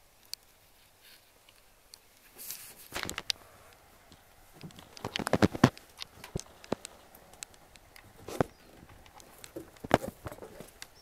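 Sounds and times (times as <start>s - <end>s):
brief rustle: 0.5s - 3.4s
handling clicks and knocks: 4.1s - 11.0s.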